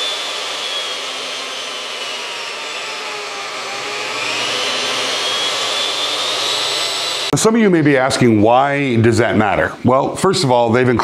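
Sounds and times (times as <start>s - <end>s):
table saw motor whine: 0.0s - 7.3s.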